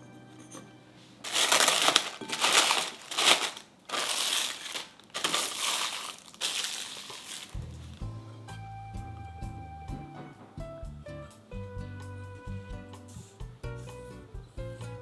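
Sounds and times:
plastic wrap crinkling: 0:01.2 - 0:08.0.

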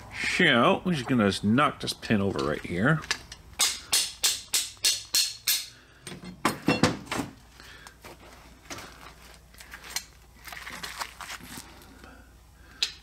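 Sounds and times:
hammer striking metal: 0:03.6 - 0:07.0.

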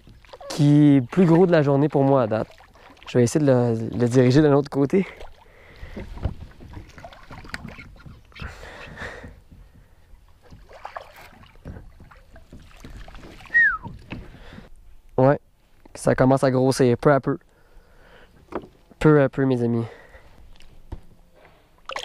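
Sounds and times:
kayak splashing and knocking: 0:00.0 - 0:14.7, 0:18.4 - 0:19.0.

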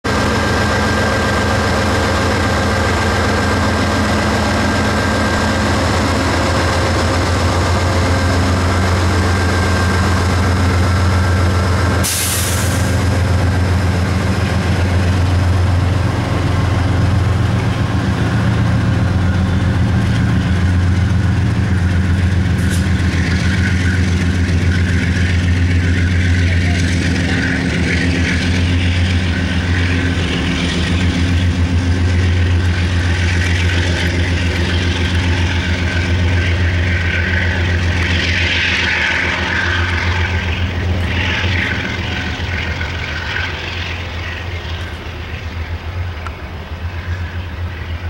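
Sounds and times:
diesel locomotive engine drone: 0:00.0 - 0:48.0
sharp hiss: 0:12.0 - 0:13.0.

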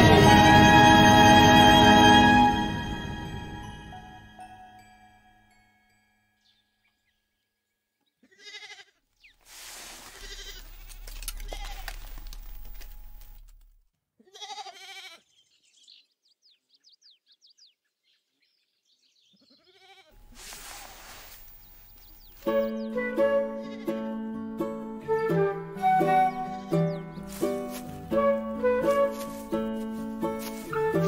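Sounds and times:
sheep bleating: 0:08.2 - 0:09.0, 0:10.1 - 0:10.8, 0:11.4 - 0:12.0, 0:14.2 - 0:15.3, 0:19.4 - 0:20.2, 0:23.6 - 0:24.0.

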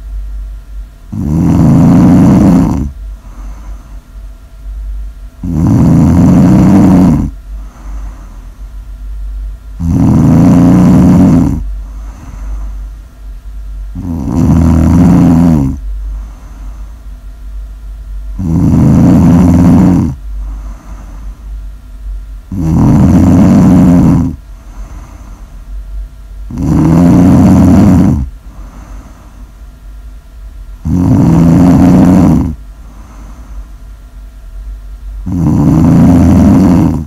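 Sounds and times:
low steady hum: 0:00.0 - 0:37.0
person snoring loudly: 0:01.1 - 0:03.9, 0:05.4 - 0:08.4, 0:09.8 - 0:12.8, 0:13.9 - 0:16.9, 0:18.3 - 0:21.4, 0:22.5 - 0:25.4, 0:26.5 - 0:29.3, 0:30.8 - 0:33.6, 0:35.2 - 0:37.0
soft breathing: 0:01.1 - 0:04.3, 0:05.4 - 0:08.8, 0:10.2 - 0:13.1, 0:13.8 - 0:17.2, 0:18.3 - 0:21.7, 0:22.5 - 0:25.8, 0:26.5 - 0:29.6, 0:30.9 - 0:33.9.

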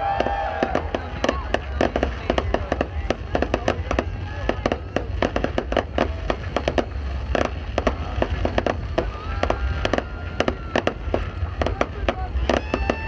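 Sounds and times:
firework whistle: 0:00.0 - 0:13.0
fireworks bangs and crackling: 0:00.0 - 0:13.0.

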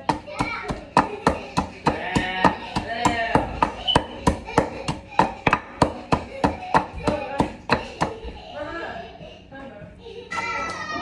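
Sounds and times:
pestle pounding in wooden mortar: 0:00.0 - 0:08.2.

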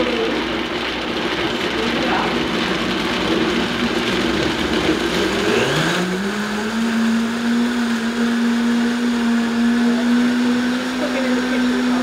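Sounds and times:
blender motor running: 0:00.0 - 0:12.0.

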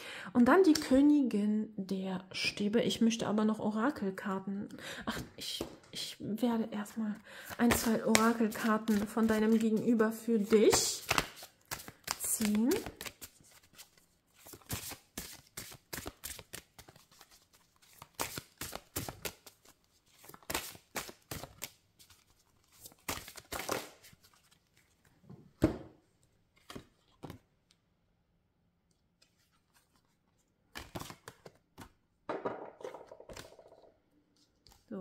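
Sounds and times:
cards being shuffled: 0:07.4 - 0:25.1, 0:26.5 - 0:27.4, 0:28.9 - 0:32.0, 0:32.6 - 0:34.9.

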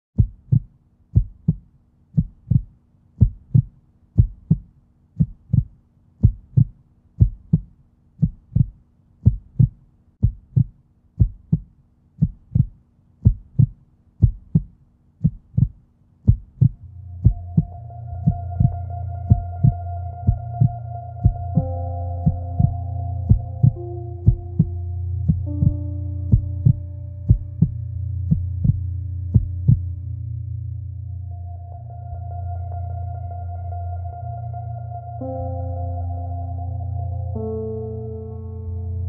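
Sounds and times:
heartbeat thumps: 0:00.2 - 0:29.9
held higher tone: 0:16.8 - 0:28.8
low drone: 0:16.8 - 0:39.0.

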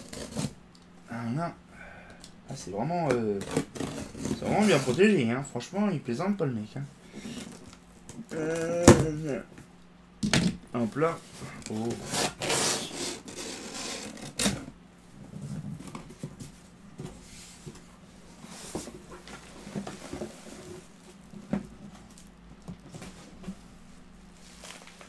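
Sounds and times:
cardboard and plastic rustling: 0:15.4 - 0:25.0.

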